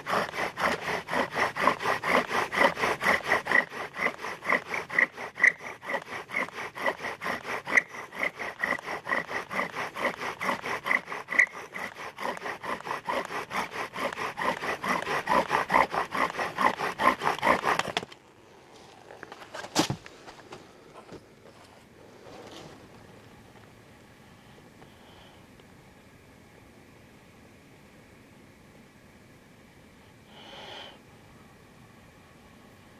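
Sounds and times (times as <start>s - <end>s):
wooden spindle squeaking and grinding: 0.0s - 18.1s.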